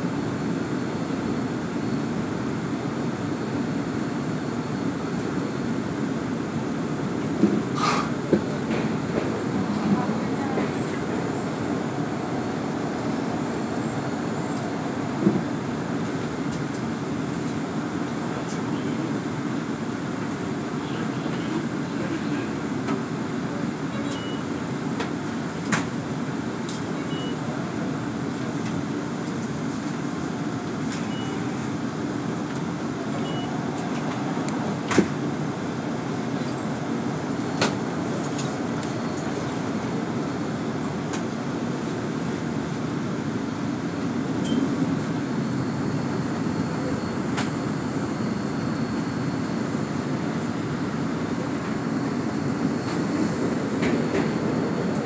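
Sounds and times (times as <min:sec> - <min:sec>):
short high beeps: 0:31.0 - 0:31.6.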